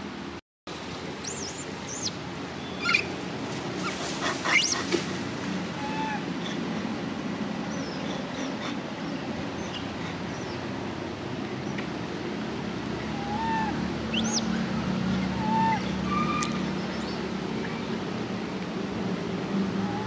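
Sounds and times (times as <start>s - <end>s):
young monkey squealing: 1.2s - 2.1s, 3.8s - 5.0s, 13.1s - 14.5s.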